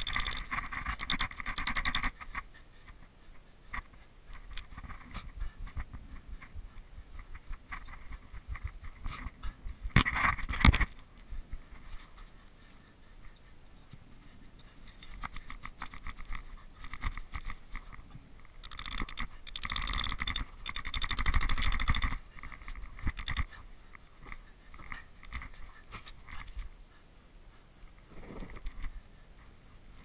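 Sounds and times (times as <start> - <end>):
tent peg scraping and crunching snow: 0.0 - 2.6, 28.0 - 28.8.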